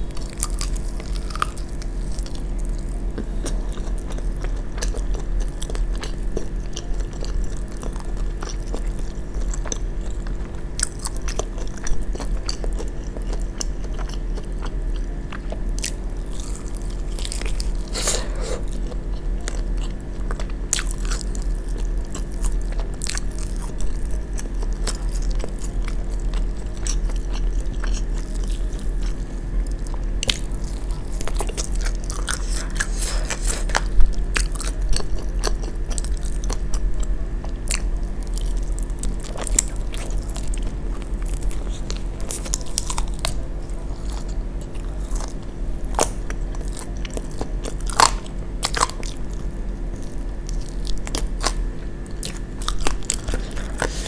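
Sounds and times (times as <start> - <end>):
chewing crunchy chicken wings: 0.0 - 54.0
low steady hum: 0.0 - 54.0.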